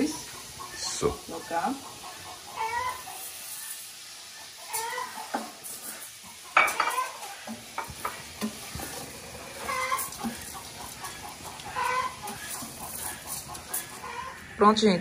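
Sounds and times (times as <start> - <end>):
rice sizzling in hot oil: 0.0 - 14.9
wooden spoon scraping a pot: 4.7 - 14.5.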